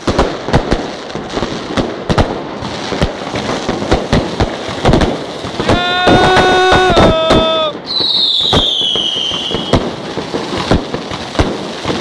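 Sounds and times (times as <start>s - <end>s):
fireworks and firecrackers banging: 0.0s - 12.0s.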